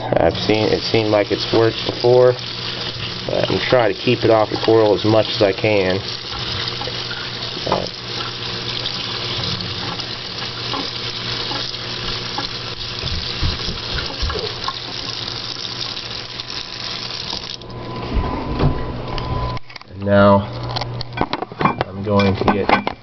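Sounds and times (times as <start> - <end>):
tap water splashing over rock: 9.8 - 15.0.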